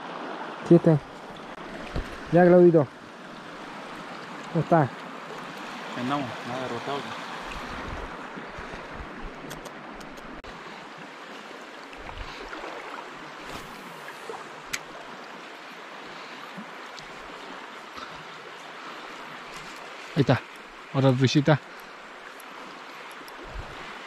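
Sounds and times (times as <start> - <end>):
faint sharp ticks: 14.7 - 14.9.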